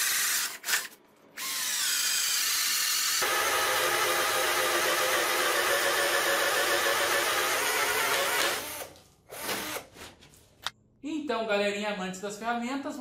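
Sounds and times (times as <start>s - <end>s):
cordless drill boring into wood: 0.0s - 9.8s.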